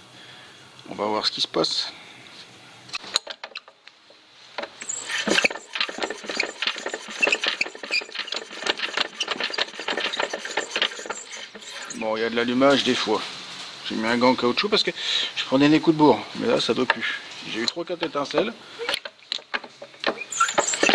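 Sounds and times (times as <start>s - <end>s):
engine clicking and rattling: 4.6s - 11.8s, 19.0s - 20.9s.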